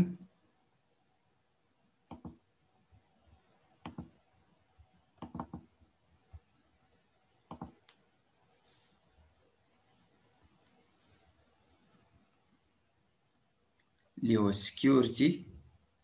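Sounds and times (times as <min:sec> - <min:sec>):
computer mouse clicks: 0:02.1 - 0:02.4, 0:03.8 - 0:04.1, 0:05.2 - 0:05.7, 0:07.5 - 0:08.0.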